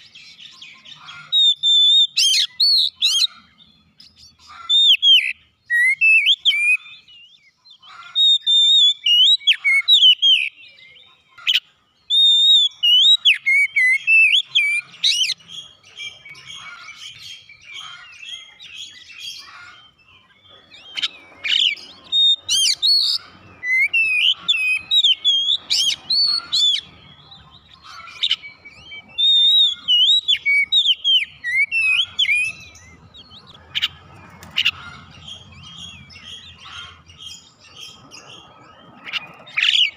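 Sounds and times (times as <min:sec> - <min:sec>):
bird singing whistled phrases: 0:01.4 - 0:03.3, 0:04.8 - 0:07.4, 0:12.1 - 0:15.4, 0:28.2 - 0:33.9.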